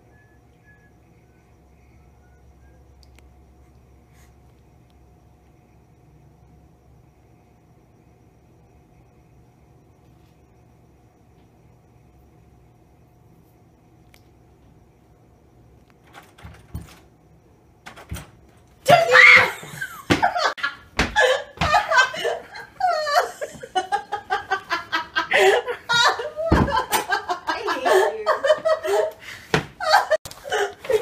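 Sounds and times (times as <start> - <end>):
loud cry: 18.9 - 19.7
people laughing: 19.6 - 29.2.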